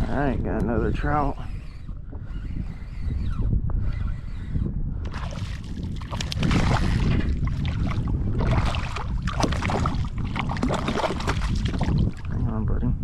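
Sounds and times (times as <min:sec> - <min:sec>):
wind rumbling on microphone: 0:00.0 - 0:13.0
water splashing around kayak: 0:05.1 - 0:12.3.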